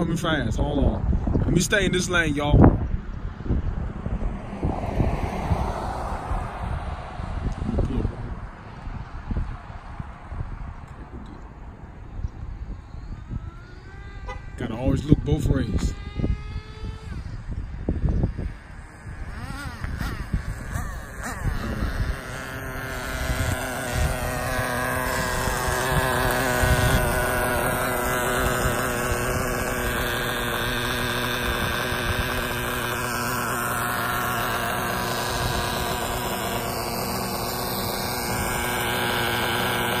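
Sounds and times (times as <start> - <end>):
small nitro engine idling: 12.3 - 40.0.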